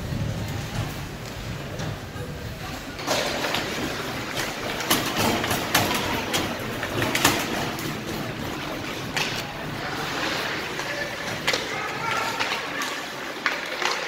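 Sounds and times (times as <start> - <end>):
hockey sticks clacking on puck: 3.0 - 14.0
skate blades scraping ice: 3.0 - 14.0.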